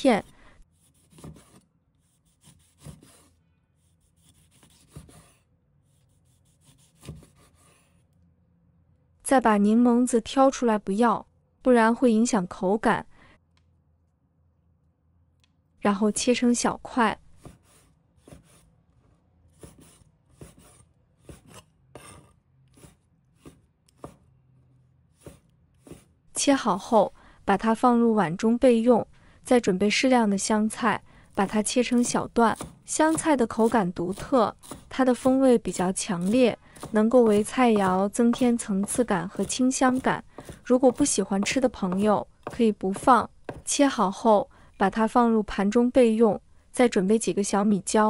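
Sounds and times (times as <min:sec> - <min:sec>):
knife cutting on wooden board: 0:00.8 - 0:03.3, 0:04.1 - 0:05.4, 0:06.0 - 0:08.0, 0:17.4 - 0:18.7, 0:19.5 - 0:24.2, 0:25.1 - 0:26.1, 0:31.4 - 0:43.7
cleaver chopping on wooden board: 0:32.6 - 0:35.3, 0:36.2 - 0:43.7.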